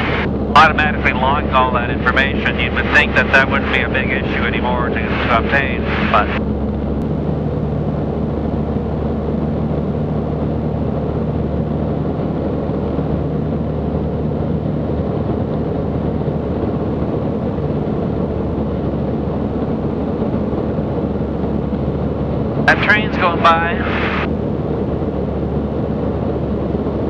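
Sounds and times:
aircraft engine and propeller hum: 0.0 - 27.0
airflow rushing: 22.7 - 24.3.

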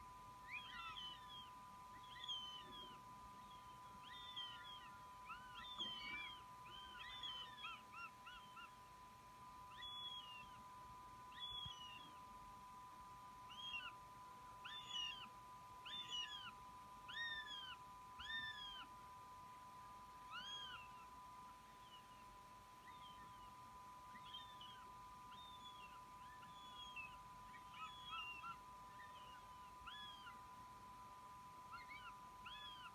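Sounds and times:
faint electronic tone: 0.0 - 16.8.

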